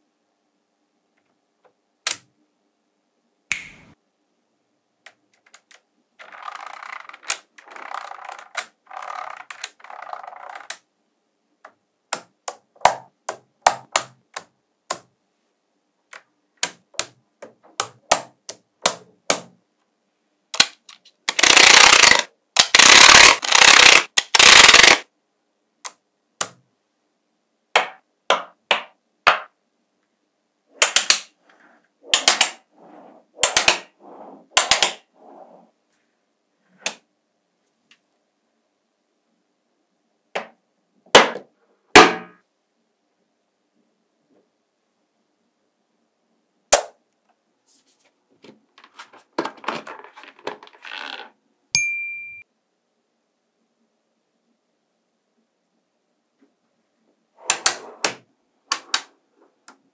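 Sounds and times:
magnetic balls clicking together: 0:20.6 - 0:25.0, 0:32.1 - 0:32.6, 0:33.4 - 0:33.9, 0:34.6 - 0:35.0
balls rattling: 0:20.8 - 0:25.0, 0:48.8 - 0:51.4.

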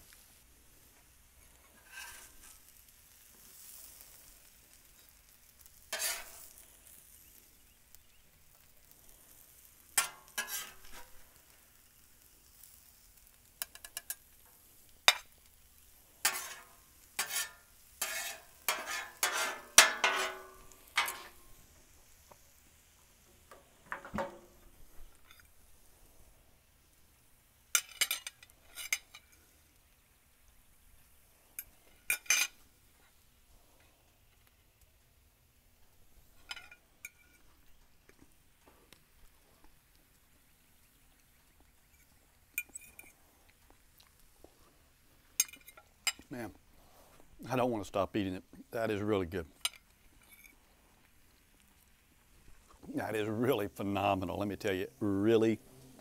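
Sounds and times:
faint sizzle: 0:00.0 - 0:56.0
metal spatula scraping griddle: 0:01.6 - 0:07.2, 0:09.8 - 0:11.3, 0:12.6 - 0:15.4, 0:16.2 - 0:21.6, 0:27.7 - 0:29.4, 0:31.6 - 0:32.6.

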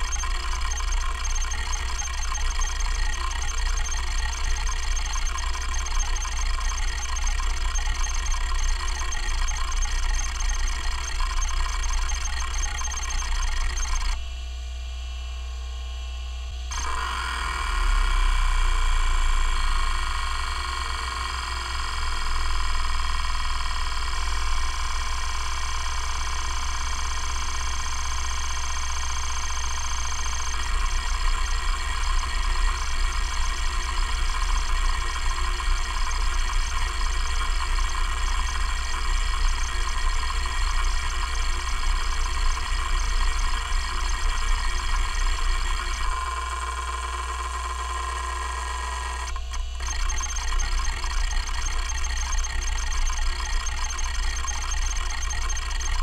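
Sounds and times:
spindle motor hum: 0:00.0 - 0:14.4, 0:16.5 - 0:56.0.

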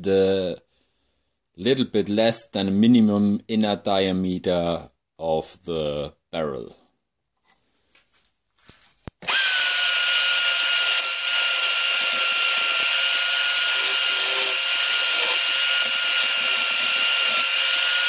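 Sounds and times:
drill high whine: 0:09.2 - 0:18.0
hand file scraping: 0:10.9 - 0:18.0.

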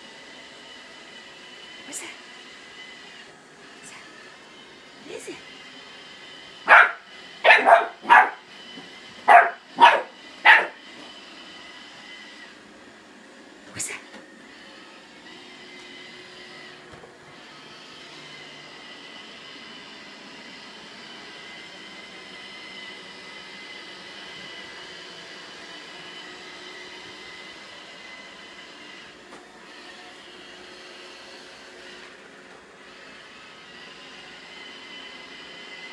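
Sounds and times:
robot vacuum whirring hum: 0:00.0 - 0:35.9
small dog barking: 0:06.7 - 0:08.4, 0:09.3 - 0:10.8.

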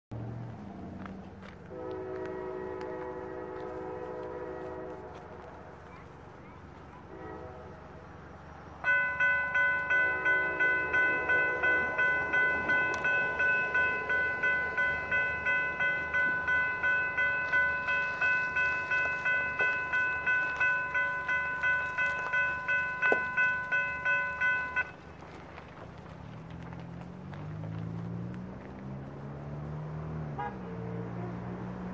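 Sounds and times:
electronic crossing bell ringing: 0:08.8 - 0:25.0.

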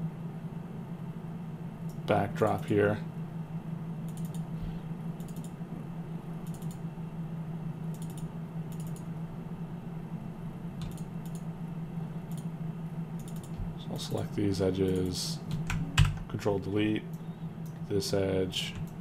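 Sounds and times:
steady low hum: 0:00.0 - 0:19.0
keyboard and mouse clicks: 0:04.1 - 0:04.5, 0:05.2 - 0:05.6, 0:06.4 - 0:06.8, 0:07.9 - 0:09.1, 0:10.8 - 0:11.5, 0:13.2 - 0:13.6.

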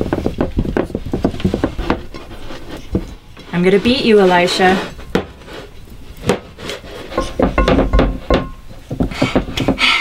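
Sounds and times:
hands rubbing glass pans: 0:00.0 - 0:10.0
glass dishes knocking: 0:07.2 - 0:08.7.

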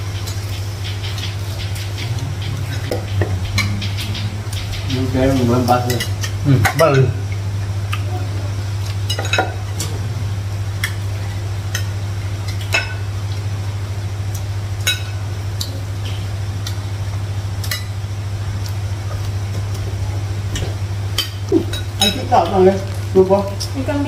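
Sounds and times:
steady low hum: 0:00.0 - 0:24.0
spoons and plates clinking: 0:21.2 - 0:22.6.

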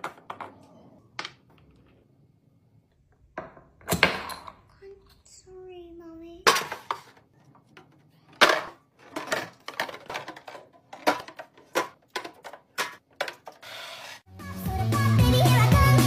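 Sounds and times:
cans clacking on plastic: 0:06.5 - 0:13.6.

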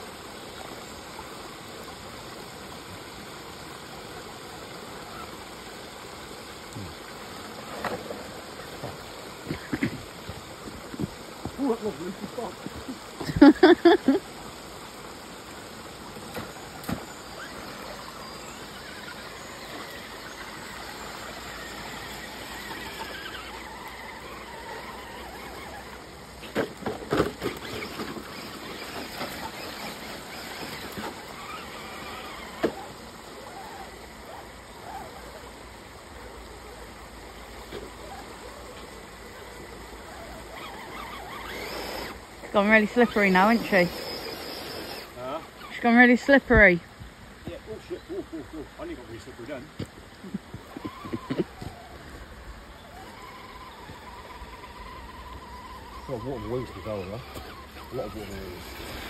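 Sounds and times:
water trickling: 0:00.0 - 0:59.0
toy truck motor whining: 0:16.2 - 0:35.6, 0:37.6 - 0:46.6, 0:50.7 - 0:59.0.

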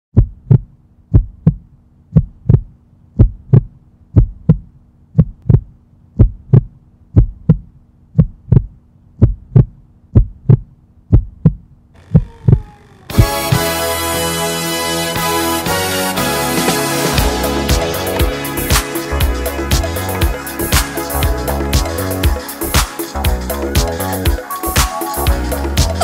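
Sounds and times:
heartbeat thumps: 0:00.2 - 0:13.4
falling glide tone: 0:12.0 - 0:14.5.

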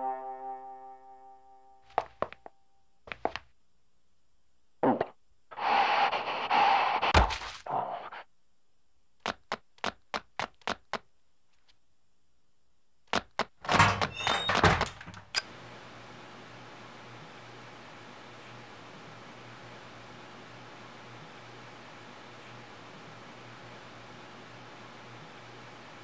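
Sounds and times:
sharp footsteps: 0:01.9 - 0:02.5, 0:03.1 - 0:03.5
clatter of knocks and rattles: 0:13.6 - 0:15.4.

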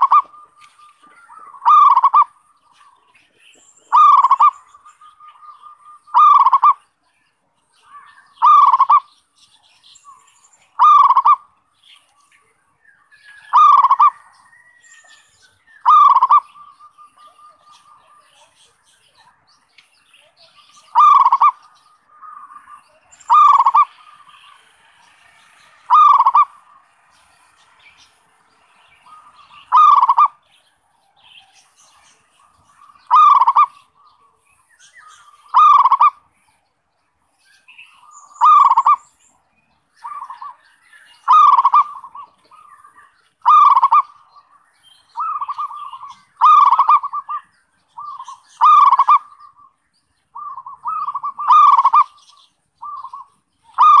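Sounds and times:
dove cooing: 0:00.0 - 0:06.8, 0:07.9 - 0:09.1, 0:10.8 - 0:11.5, 0:13.4 - 0:14.7, 0:15.8 - 0:18.6, 0:20.8 - 0:24.7, 0:25.8 - 0:26.9, 0:29.0 - 0:30.5, 0:31.2 - 0:34.4, 0:35.3 - 0:36.3, 0:38.4 - 0:39.1, 0:40.0 - 0:40.6, 0:41.2 - 0:49.8, 0:50.4 - 0:52.2, 0:52.8 - 0:54.0.

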